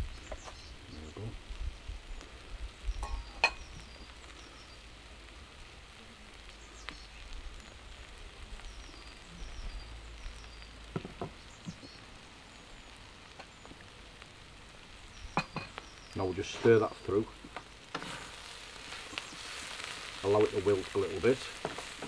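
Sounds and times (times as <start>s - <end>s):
vegetables sizzling in frying pan: 0.0s - 22.0s.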